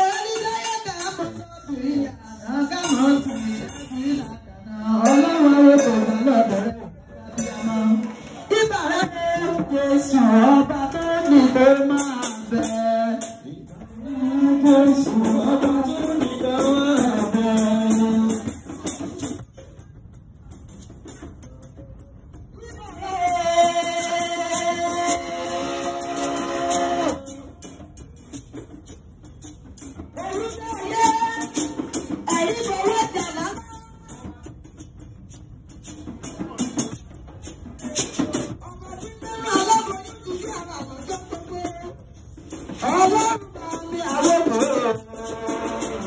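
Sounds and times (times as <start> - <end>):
hand percussion rattle: 0.0 - 1.6, 2.5 - 6.6, 7.3 - 46.0
woman singing a chant: 0.0 - 18.5, 30.2 - 34.2.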